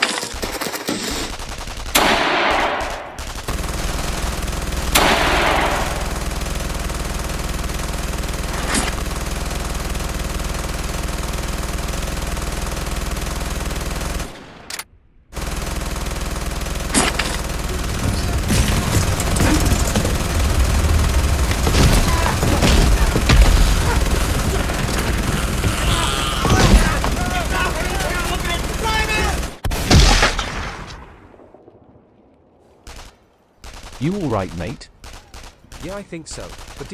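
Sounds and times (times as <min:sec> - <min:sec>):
rifle and machine-gun fire: 0:00.0 - 0:31.2, 0:32.8 - 0:36.9
low rumbling: 0:17.4 - 0:29.6
sharp single gunshot: 0:29.7 - 0:31.2.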